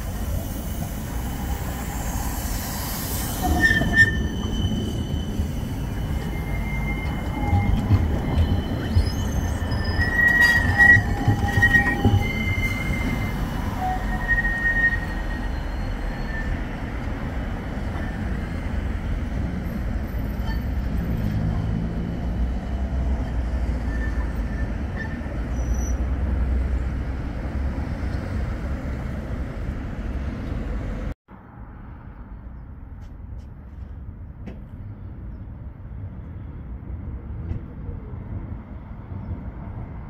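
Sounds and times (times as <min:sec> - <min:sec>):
tram rumbling on rails: 0:00.0 - 0:40.0
high-pitched wheel squeals: 0:00.8 - 0:17.0, 0:23.6 - 0:26.2.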